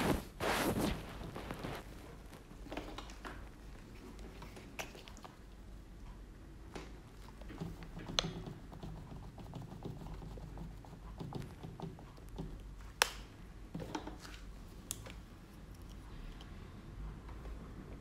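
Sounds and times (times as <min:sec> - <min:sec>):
sponge patting canvas: 0:00.0 - 0:02.2, 0:07.4 - 0:12.6.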